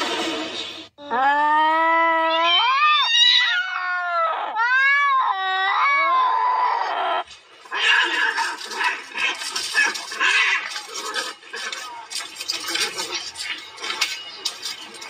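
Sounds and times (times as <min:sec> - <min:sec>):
cat yowling: 0:01.0 - 0:08.4
cats fighting: 0:01.7 - 0:15.0.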